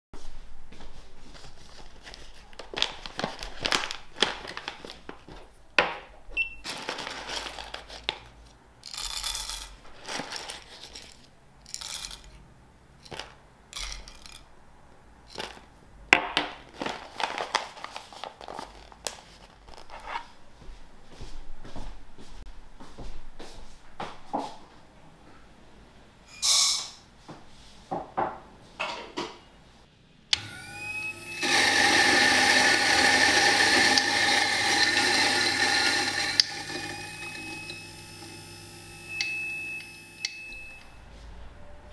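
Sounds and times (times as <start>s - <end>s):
paper bag crinkling: 1.4s - 5.5s, 6.6s - 12.2s, 16.7s - 20.4s
coffee beans clattering: 6.7s - 8.2s, 8.8s - 12.4s, 13.0s - 14.4s, 15.3s - 15.6s, 31.4s - 39.4s.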